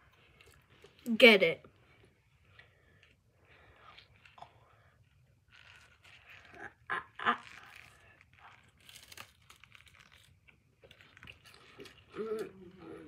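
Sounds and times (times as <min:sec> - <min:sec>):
crunching bites of potato chip: 0:05.5 - 0:12.5.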